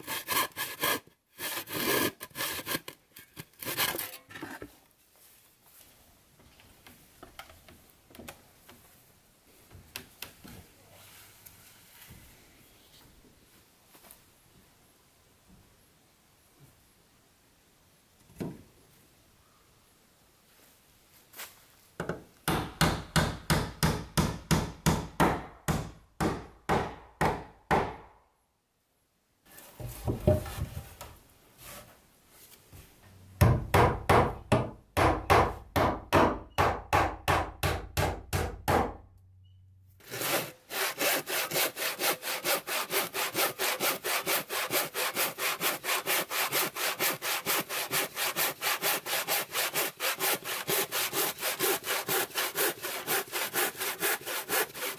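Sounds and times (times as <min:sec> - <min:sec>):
handsaw cutting wood: 0:00.0 - 0:03.0, 0:40.0 - 0:54.9
hammer striking wooden boards: 0:22.1 - 0:28.2, 0:33.4 - 0:39.0.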